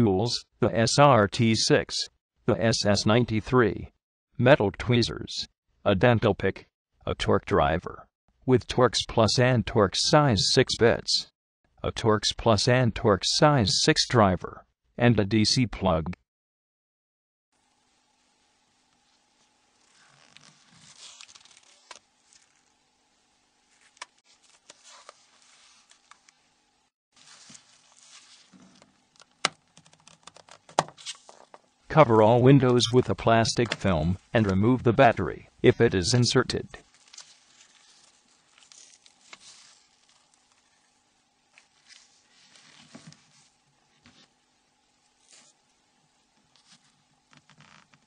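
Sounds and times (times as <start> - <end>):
soft rustling: 23.7 - 26.4, 27.2 - 29.0, 36.8 - 44.4.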